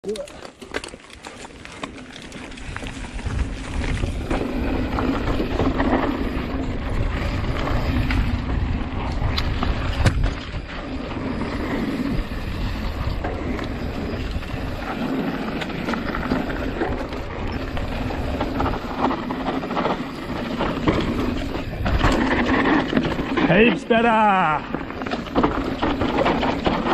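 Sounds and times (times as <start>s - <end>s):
tyres rumbling and rattling on trail: 0.0s - 26.9s
wind buffeting microphone: 2.3s - 23.5s.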